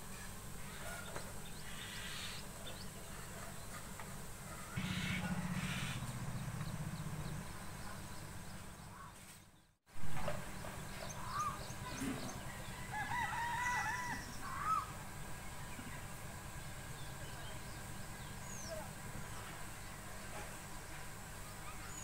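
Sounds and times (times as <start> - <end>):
birds calling: 0.1 - 19.1
rooster crowing: 4.6 - 6.0, 12.5 - 14.9.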